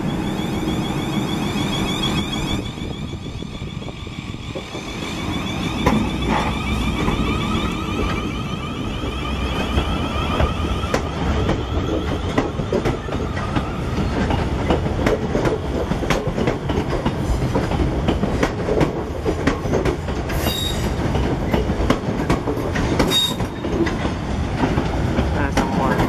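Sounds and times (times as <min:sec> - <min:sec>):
high wheel squeals: 0:00.0 - 0:14.4, 0:20.4 - 0:21.0, 0:23.0 - 0:23.8
train wheels clattering over rail joints: 0:04.3 - 0:08.3, 0:09.0 - 0:26.0.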